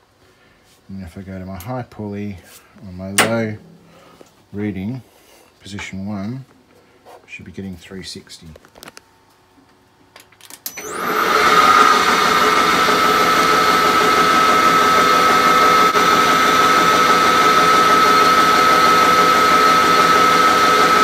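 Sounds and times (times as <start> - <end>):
metal lathe spinning up: 10.8 - 21.0.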